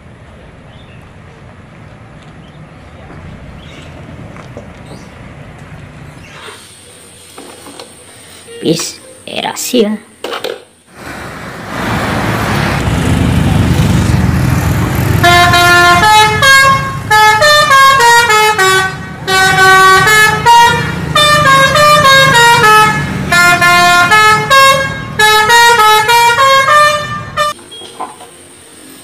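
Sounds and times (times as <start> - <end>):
passing coach engine and road noise: 0.0 - 9.4, 10.8 - 29.0
multi-tone horn playing a tune: 15.2 - 27.6.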